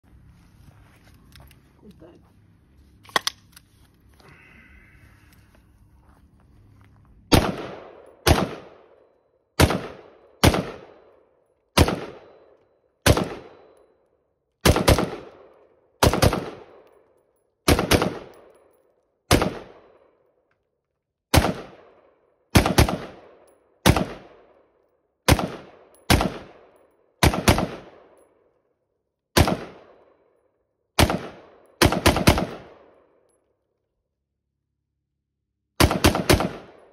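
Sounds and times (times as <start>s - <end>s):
rifle shots with echo: 7.3s - 13.8s, 14.6s - 17.0s, 17.6s - 18.5s, 19.3s - 20.2s, 21.3s - 28.5s, 29.3s - 30.4s, 31.0s - 33.3s, 35.8s - 36.9s.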